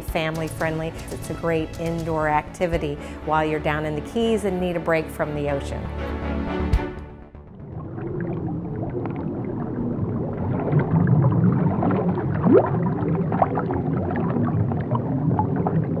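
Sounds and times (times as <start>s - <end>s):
bubbling gurgling water: 7.4s - 16.0s.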